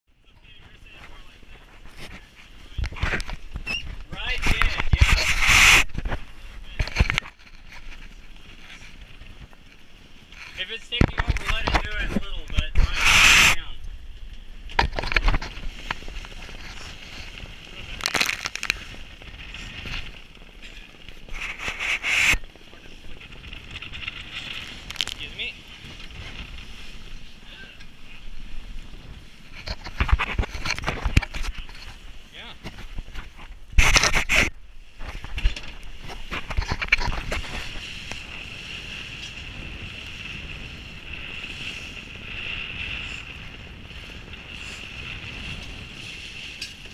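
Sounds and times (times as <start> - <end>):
wind buffeting microphone: 0.6 - 46.9
bow wave hissing: 12.9 - 13.8, 21.3 - 22.5.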